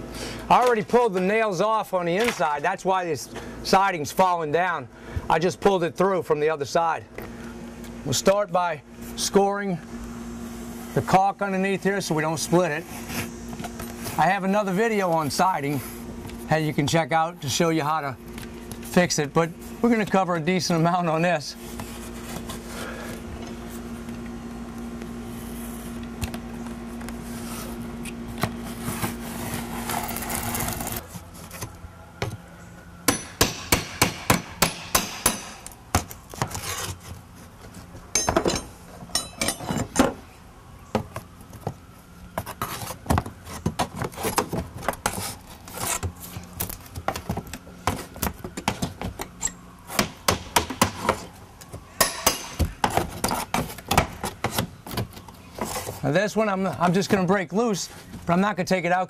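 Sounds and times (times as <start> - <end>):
steady low hum: 0.0 - 58.8
hammer striking wooden siding: 33.1 - 36.6, 49.9 - 51.3, 52.0 - 55.2.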